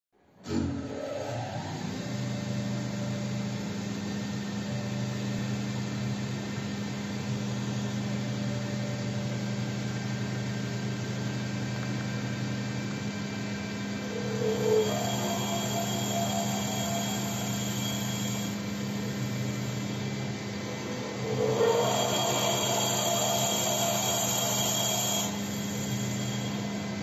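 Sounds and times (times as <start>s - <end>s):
wood lathe motor hum: 13.0s - 27.0s
lathe cutting hiss: 13.6s - 27.0s.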